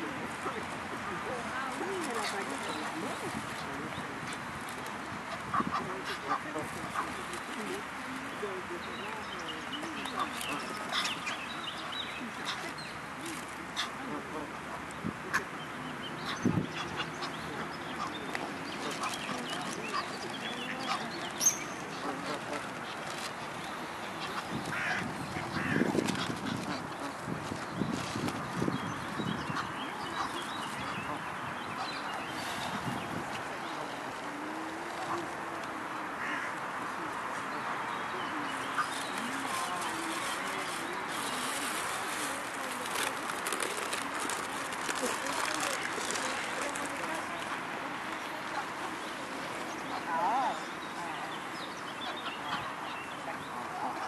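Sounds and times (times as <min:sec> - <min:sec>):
ducks quacking: 0:05.3 - 0:07.3, 0:16.2 - 0:27.4
open-air hiss: 0:28.9 - 0:54.0.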